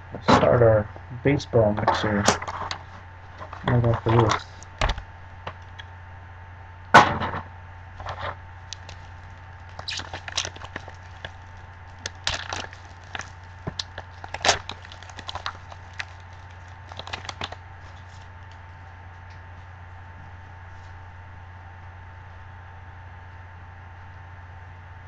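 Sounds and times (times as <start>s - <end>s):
cards drawn out rustling: 2.0s - 5.8s, 12.0s - 18.3s
foil wrapper tearing and crinkling: 2.3s - 4.9s, 8.0s - 18.6s
sharp crack: 6.9s - 17.6s.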